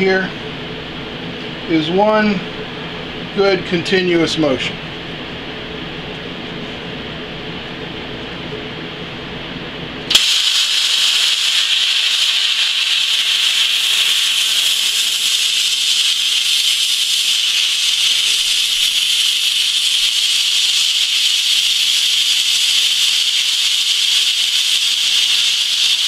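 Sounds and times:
plasma cutter hissing: 0:10.1 - 0:26.0.

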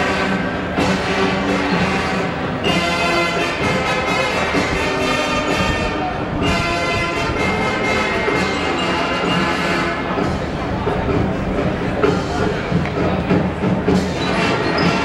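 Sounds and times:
brass chords: 0:00.0 - 0:10.4
marching drums: 0:00.0 - 0:15.0.

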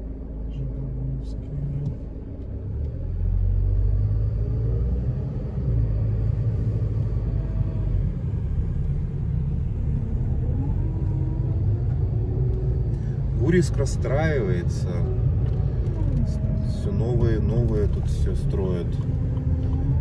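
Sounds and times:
car interior road rumble: 0:00.0 - 0:20.0.

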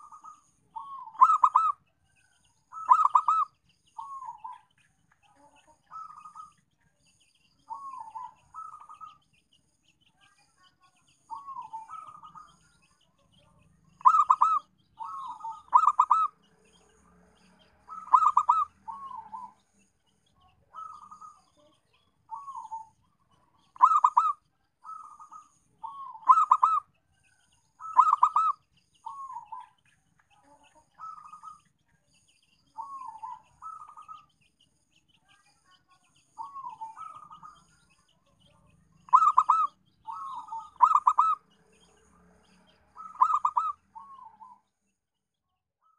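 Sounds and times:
dove cooing: 0:00.0 - 0:01.8, 0:02.7 - 0:04.6, 0:07.7 - 0:09.2, 0:11.3 - 0:12.5, 0:14.0 - 0:16.4, 0:17.9 - 0:19.6, 0:20.7 - 0:21.6, 0:22.3 - 0:23.0, 0:23.6 - 0:26.9, 0:27.8 - 0:29.7, 0:32.8 - 0:34.2, 0:36.4 - 0:37.6, 0:39.0 - 0:41.4, 0:43.0 - 0:44.6.

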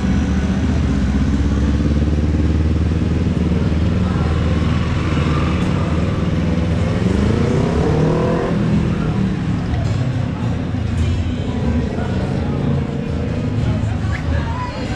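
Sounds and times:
vehicle engines passing: 0:00.0 - 0:14.9
voices of passers-by: 0:00.0 - 0:14.9.

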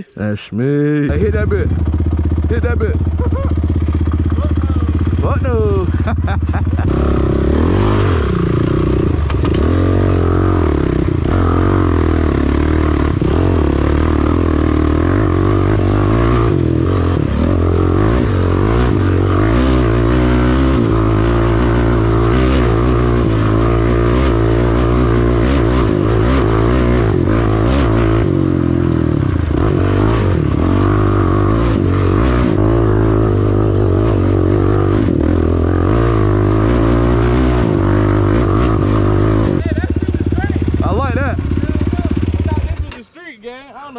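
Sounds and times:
atv engine revving: 0:01.0 - 0:43.0
clatter and knocks over bumps: 0:08.9 - 0:09.9.

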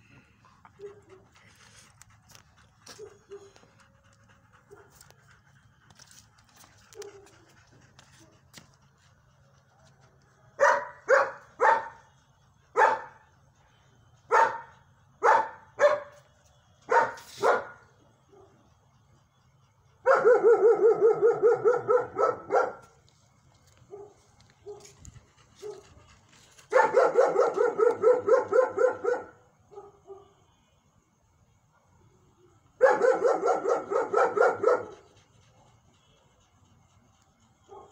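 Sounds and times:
dog barking: 0:02.9 - 0:03.6, 0:10.6 - 0:12.1, 0:12.7 - 0:13.2, 0:14.3 - 0:16.2, 0:16.9 - 0:18.6, 0:20.0 - 0:22.9, 0:23.9 - 0:24.9, 0:25.6 - 0:25.9, 0:26.7 - 0:30.4, 0:32.8 - 0:35.7, 0:37.7 - 0:37.9.

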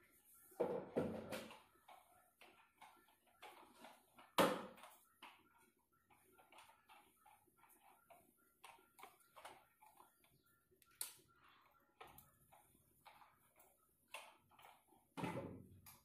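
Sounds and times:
faint clicks and taps: 0:00.2 - 0:16.0.

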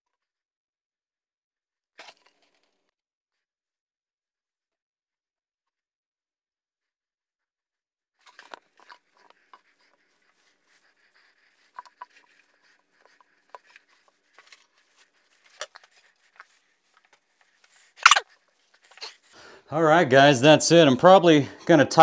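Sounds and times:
cloth rag rustling over hands: 0:08.2 - 0:19.3.

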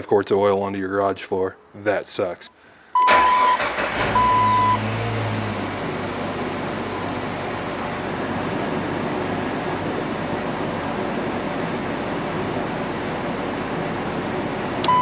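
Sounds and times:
car engine idling: 0:03.1 - 0:15.0.

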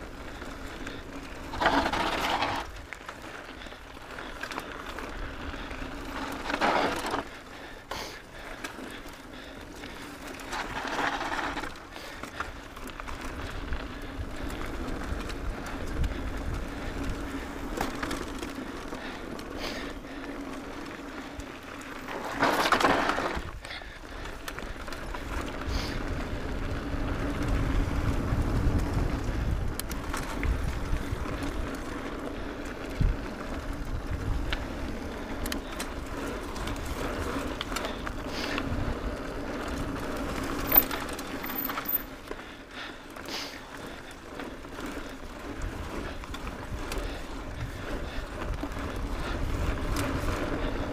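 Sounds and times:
bike rattling over bumps: 0:00.0 - 0:50.9
tyres crunching over gravel: 0:00.1 - 0:50.9
wind rumble on microphone: 0:24.8 - 0:40.9, 0:45.4 - 0:50.9.

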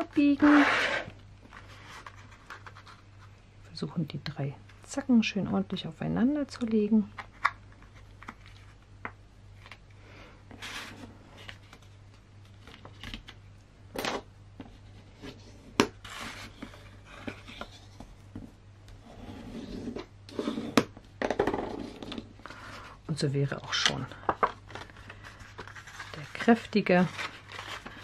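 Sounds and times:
paper being folded: 0:24.4 - 0:28.0
paper rustling: 0:24.4 - 0:28.0.

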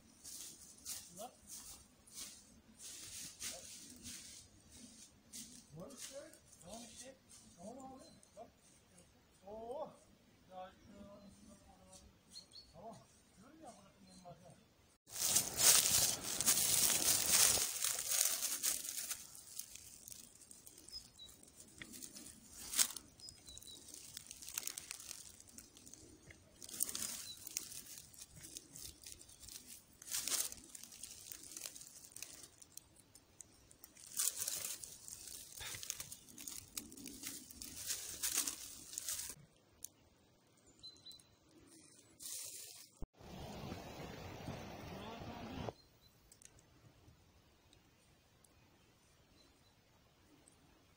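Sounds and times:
dry leaves rustling and crackling: 0:00.0 - 0:07.8, 0:15.1 - 0:39.4, 0:42.0 - 0:43.0
stems snapping: 0:15.2 - 0:40.0.

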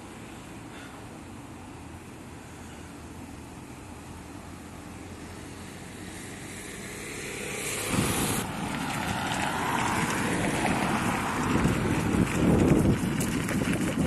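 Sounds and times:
wind buffeting microphone: 0:07.6 - 0:14.0.

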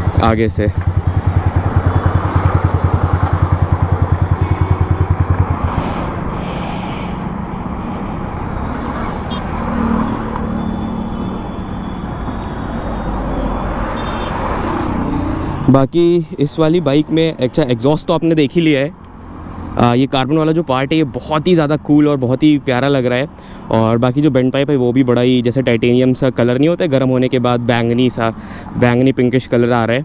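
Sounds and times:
motorcycle engine idling: 0:00.0 - 0:07.2
road traffic noise: 0:00.0 - 0:30.0.

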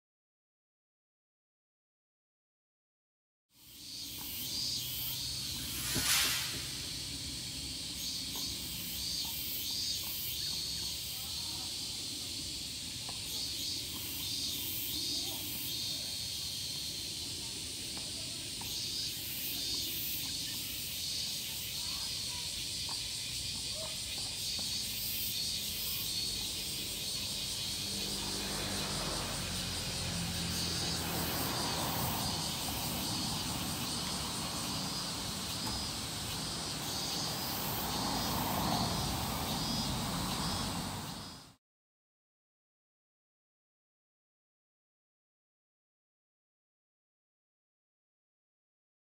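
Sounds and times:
cicadas calling: 0:03.6 - 0:41.6
low rumble: 0:05.5 - 0:07.6.

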